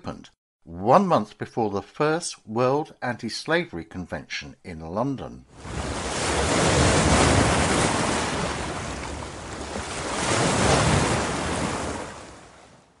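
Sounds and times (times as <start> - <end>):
ocean waves washing in: 5.5 - 13.0.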